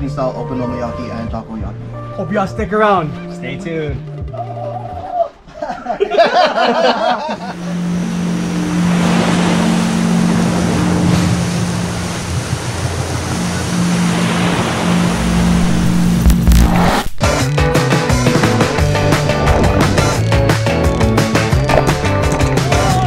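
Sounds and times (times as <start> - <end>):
music: 0.0 - 11.9, 13.0 - 23.0
ocean surf rushing: 7.6 - 23.0.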